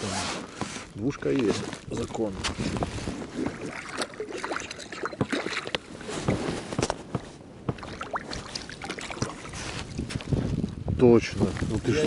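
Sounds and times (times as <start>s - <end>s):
water splashing against boat: 0.0s - 10.6s.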